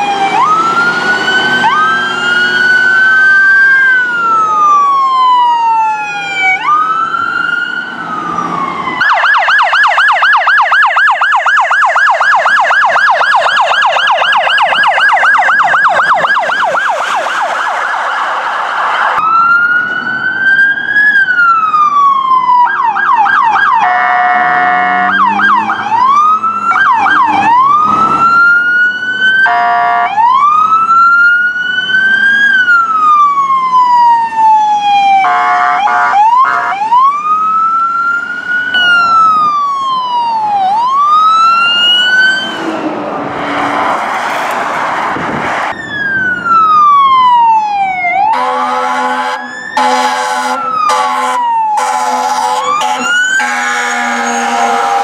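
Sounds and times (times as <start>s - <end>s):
yelp siren: 0.0s - 44.0s, 45.6s - 55.0s
wailing sirens: 0.0s - 55.0s
horn blasts: 23.8s - 25.2s, 29.4s - 30.1s, 35.2s - 36.8s, 48.3s - 55.0s.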